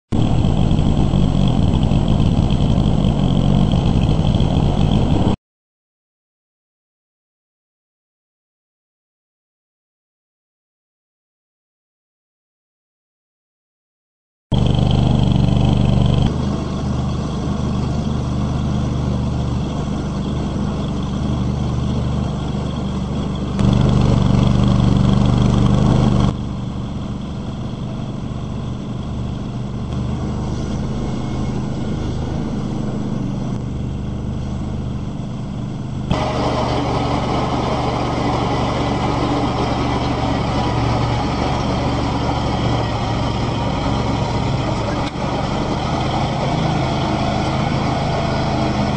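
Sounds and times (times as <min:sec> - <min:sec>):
trencher engine under load: 0:14.5 - 0:48.9.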